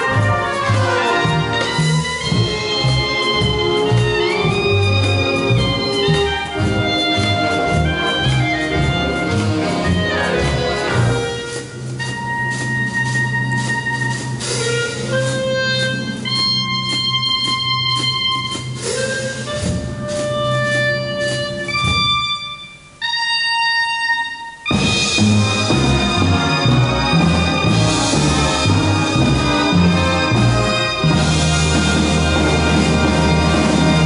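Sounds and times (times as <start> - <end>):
solo clarinet: 0.0 - 25.2
wind band playing jazzy foxtrot: 0.0 - 34.0.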